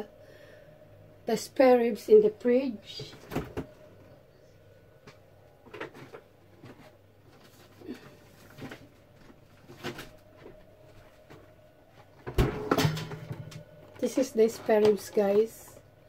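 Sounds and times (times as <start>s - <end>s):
fridge rummaging knocks and rustles: 2.9s - 3.7s, 12.2s - 13.6s
fridge drawer bumping: 12.3s - 13.6s.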